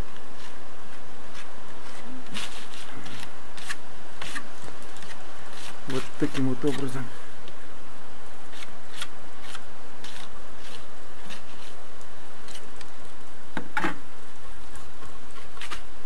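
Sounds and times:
trowel scraping mortar: 1.3s - 7.0s, 8.5s - 11.8s.

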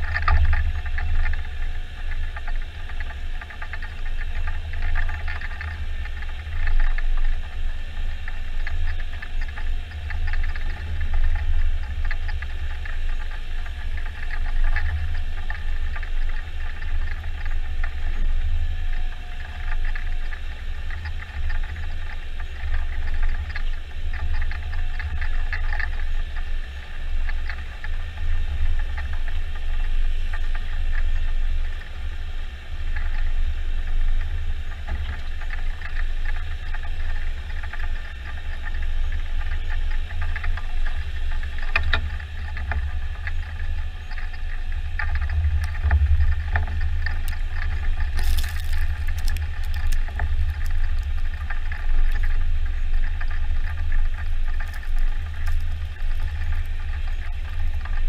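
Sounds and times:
forestry machine engine rumbling: 45.5s - 52.3s.

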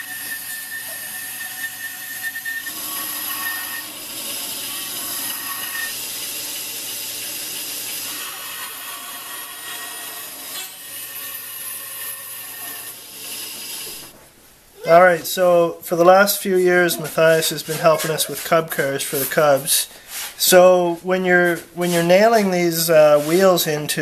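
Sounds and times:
bandsaw cutting wood: 0.0s - 14.0s.

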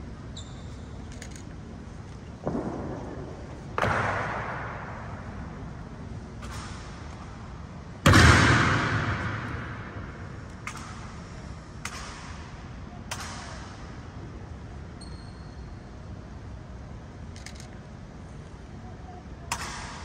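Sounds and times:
rifle strike echoing: 2.4s - 5.7s, 8.0s - 11.0s.

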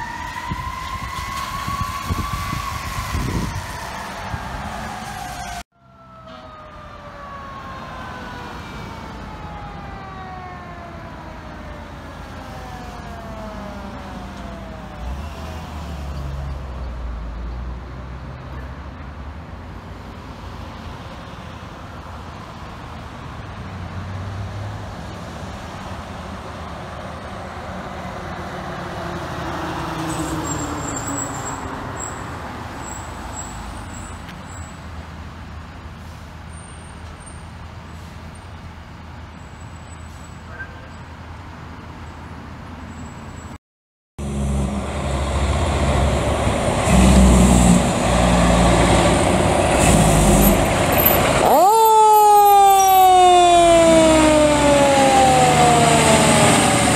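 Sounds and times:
emergency vehicles passing: 0.0s - 43.6s, 44.2s - 56.9s
heavy engine rumbling: 44.2s - 56.9s
mechanical siren winding down: 50.3s - 56.9s.

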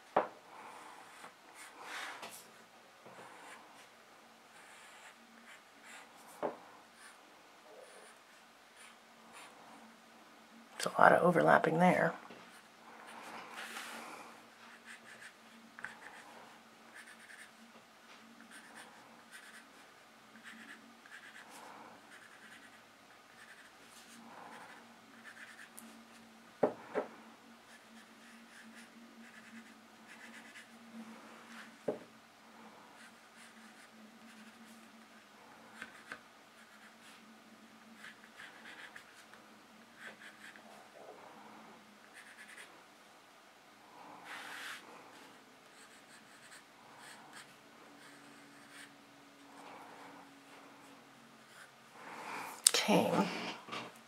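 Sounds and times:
pencil scratching on paper: 3.2s - 3.6s, 4.5s - 6.1s, 14.7s - 16.3s, 16.9s - 17.6s, 18.4s - 25.7s, 27.7s - 30.8s, 33.0s - 34.8s, 35.8s - 37.2s, 38.0s - 39.3s, 39.9s - 40.7s, 42.1s - 42.7s, 44.2s - 49.0s.

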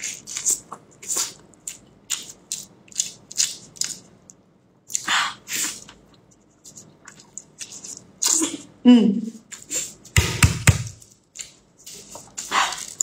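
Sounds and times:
wet chewing and lip-smacking: 0.0s - 8.4s.

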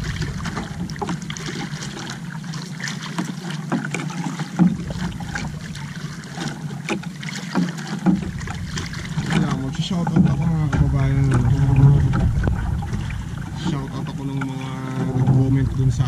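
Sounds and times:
water slapping against hull: 0.0s - 16.0s
short knocks: 6.4s - 16.0s.

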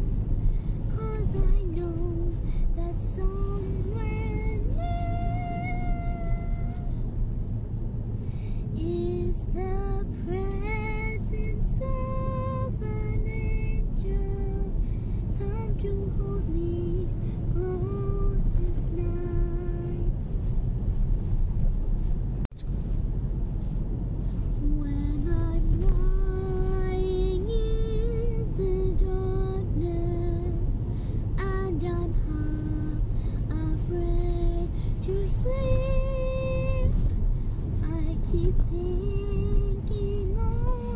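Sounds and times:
car driving rumble: 0.0s - 40.9s.

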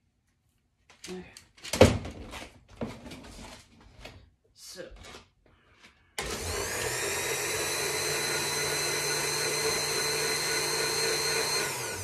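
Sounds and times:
blender motor whining: 6.2s - 12.0s.

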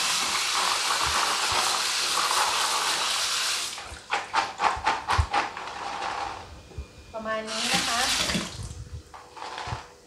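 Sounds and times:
tap water running: 0.0s - 5.4s, 7.5s - 9.6s.

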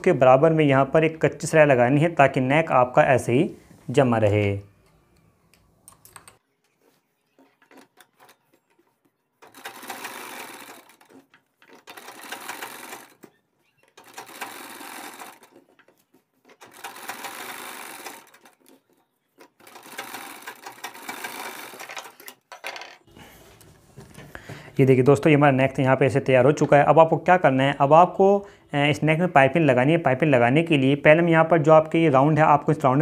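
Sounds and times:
sewing machine stitching: 7.3s - 22.4s.

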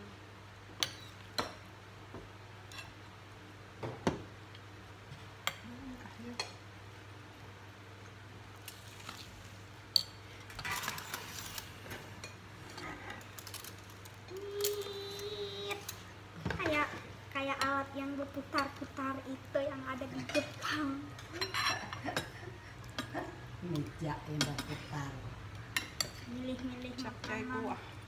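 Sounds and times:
spoons clinking on ceramic bowls: 21.2s - 22.3s.

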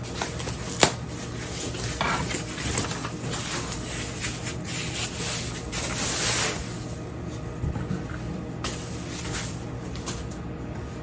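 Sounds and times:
foam wrap rustling: 0.0s - 7.6s, 8.2s - 11.0s.

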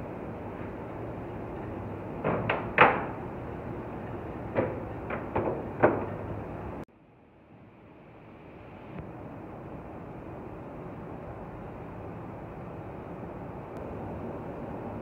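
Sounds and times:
hard objects knocking and clunking: 4.5s - 6.2s.

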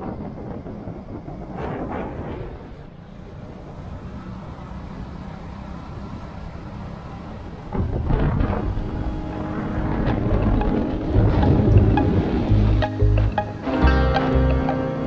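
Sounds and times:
wind noise on microphone: 0.0s - 4.2s, 7.7s - 13.4s
motorcycle engine drone: 0.0s - 15.0s.

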